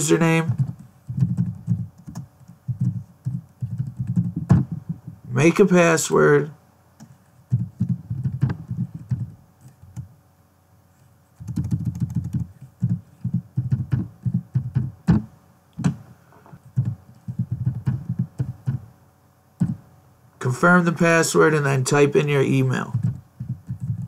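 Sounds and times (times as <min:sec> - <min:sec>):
typing on computer keyboard: 0:00.5 - 0:04.8, 0:11.4 - 0:14.9, 0:22.9 - 0:24.0.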